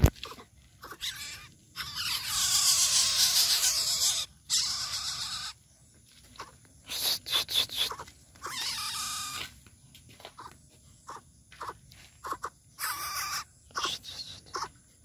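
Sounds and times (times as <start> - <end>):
bird giving harsh calls: 0.8 - 5.6.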